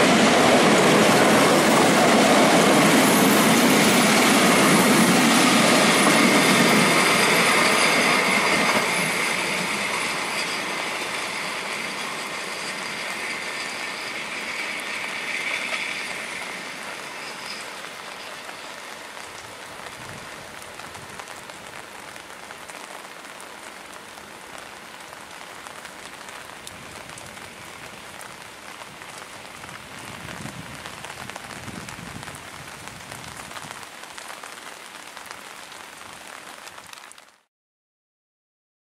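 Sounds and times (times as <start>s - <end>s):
train coaches rumbling: 0.0s - 21.7s
rain hissing: 0.0s - 37.5s.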